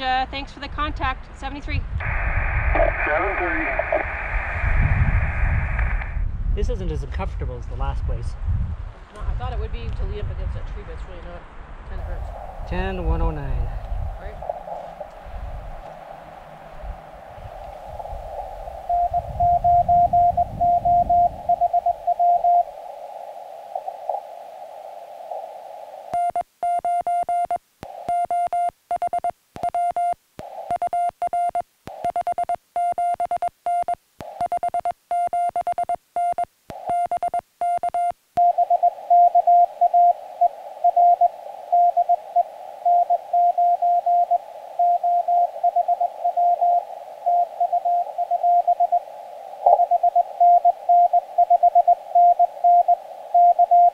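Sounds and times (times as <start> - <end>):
radio receiver hiss: 2.0 - 6.2, 12.0 - 26.4, 27.8 - 28.2, 30.3 - 30.8, 34.2 - 34.5, 36.6 - 37.1, 38.4 - 53.9
morse code tone: 18.2 - 53.9.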